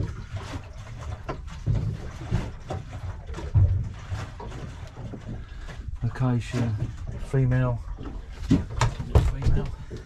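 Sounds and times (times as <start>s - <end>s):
low thuds on boat deck: 8.0s - 10.0s.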